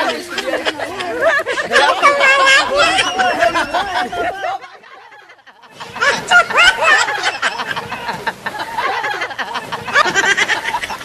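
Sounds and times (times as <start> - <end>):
people laughing: 0.0 - 11.0
people shouting excitedly: 1.6 - 4.8.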